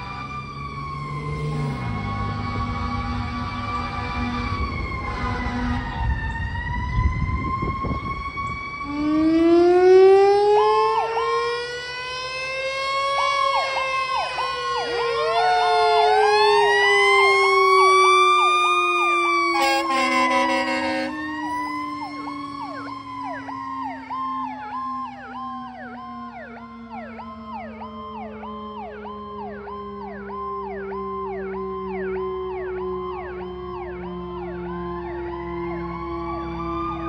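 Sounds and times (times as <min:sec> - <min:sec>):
deep wailing siren: 0:00.0 - 0:37.0
road rumble: 0:00.0 - 0:37.0
siren sweeping rapidly up and down: 0:00.0 - 0:37.0
horn blast: 0:19.5 - 0:21.2.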